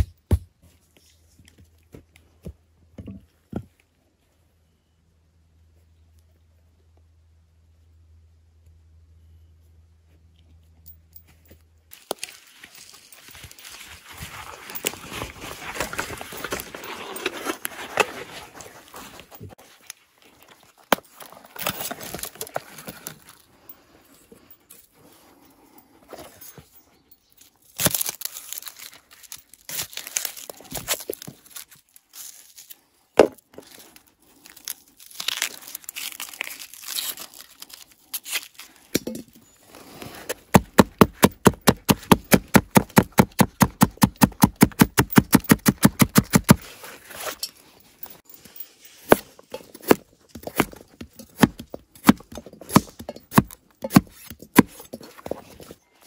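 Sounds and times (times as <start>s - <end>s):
crinkling and rustling handling noise: 9.9s - 43.3s, 44.9s - 56.0s.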